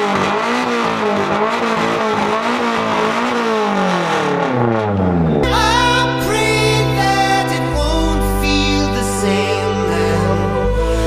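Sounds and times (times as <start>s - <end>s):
car engine revving: 0.0s - 11.0s
music: 5.4s - 11.0s.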